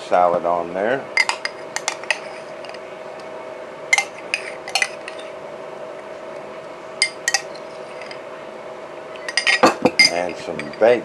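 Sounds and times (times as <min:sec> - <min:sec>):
metal spoon clinking on plate: 0:03.9 - 0:05.3, 0:07.0 - 0:08.2, 0:09.2 - 0:10.8.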